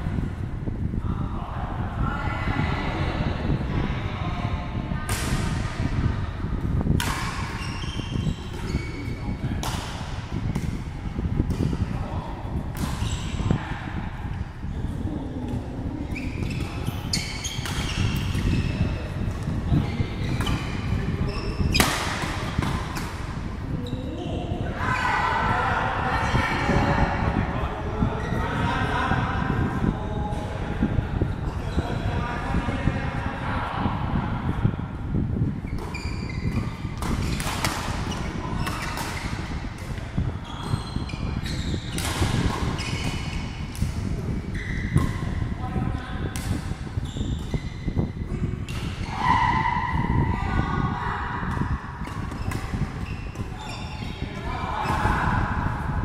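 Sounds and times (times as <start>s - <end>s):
low hall rumble: 0.0s - 56.0s
shoes squeaking on floor: 7.2s - 9.4s, 13.0s - 13.6s, 16.0s - 19.1s, 19.7s - 22.6s, 35.6s - 39.7s, 40.4s - 43.7s, 44.5s - 45.4s, 46.9s - 48.0s, 51.6s - 55.0s.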